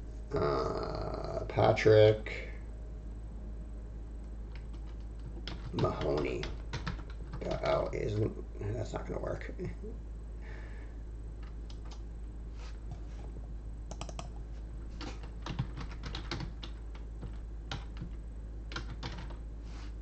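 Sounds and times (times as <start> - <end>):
steady low hum: 0.0 - 20.0
typing on computer keyboard: 4.5 - 7.7, 13.9 - 14.4, 15.0 - 19.4.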